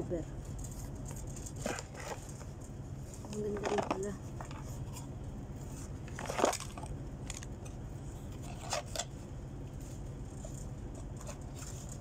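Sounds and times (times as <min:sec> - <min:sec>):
steady low hum: 0:00.0 - 0:12.0
plastic phone cover rustle: 0:05.6 - 0:07.5.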